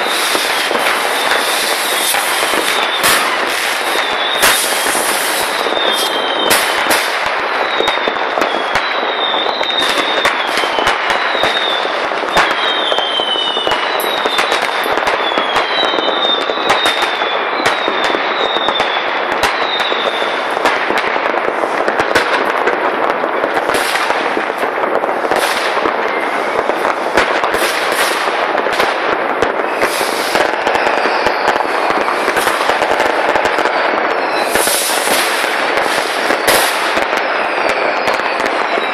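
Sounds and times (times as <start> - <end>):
falling whistles: 0.0 - 20.3, 29.6 - 35.4, 36.0 - 38.9
fireworks crackling: 0.0 - 38.9
sharp firework bangs: 0.0 - 38.9.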